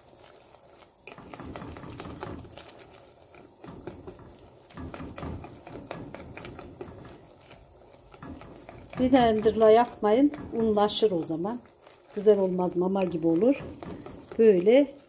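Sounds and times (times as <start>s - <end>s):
whisk tapping and scraping pot: 0.0s - 15.0s.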